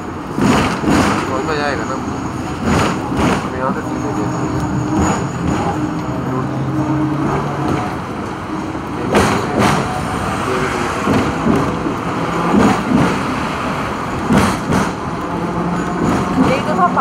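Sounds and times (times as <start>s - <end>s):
wheels knocking on track: 0.0s - 4.0s, 9.0s - 17.0s
tram rumbling on rails: 0.0s - 17.0s.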